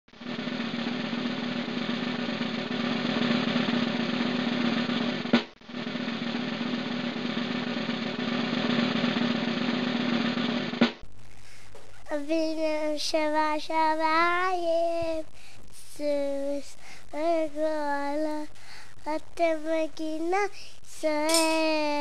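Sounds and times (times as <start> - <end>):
snare drum roll with hit: 0.2 - 11.0
low hum: 0.2 - 22.0.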